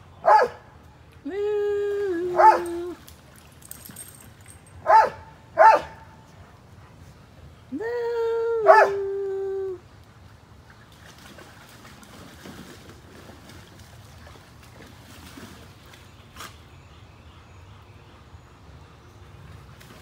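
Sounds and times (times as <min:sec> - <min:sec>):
water splashing and sloshing: 0:00.5 - 0:07.4, 0:09.9 - 0:16.8, 0:19.4 - 0:20.0.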